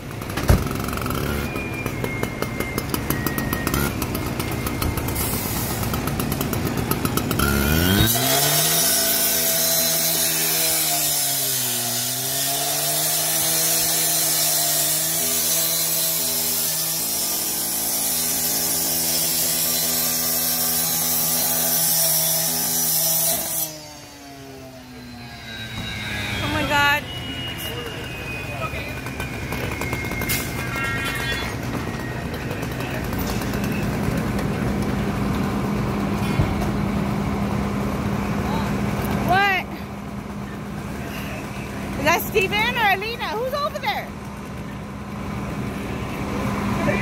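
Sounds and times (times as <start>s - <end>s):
petrol cut-off saw cutting metal: 0.2s - 27.8s.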